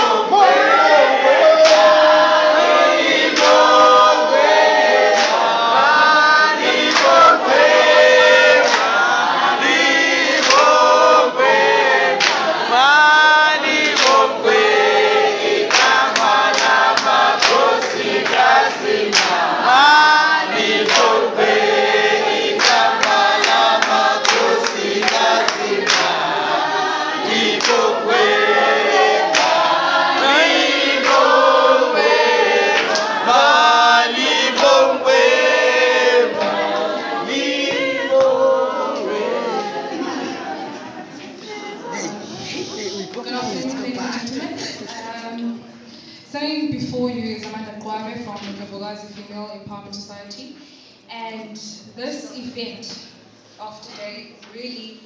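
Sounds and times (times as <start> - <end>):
group singing unaccompanied: 0.0 - 45.6
hand clapping: 1.6 - 2.0, 3.2 - 3.8, 5.1 - 5.5, 6.8 - 7.3, 8.6 - 9.0, 10.4 - 10.7, 12.2 - 12.5, 13.9 - 14.3, 15.7 - 19.5, 20.8 - 21.2, 22.6 - 26.3, 27.4 - 28.0, 29.2 - 29.7, 31.0 - 31.4, 32.7 - 33.2, 34.2 - 34.8.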